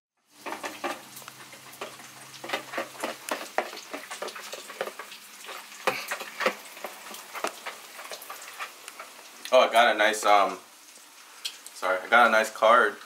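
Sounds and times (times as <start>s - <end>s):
utensil stirring batter in bowl: 0.4s - 9.4s.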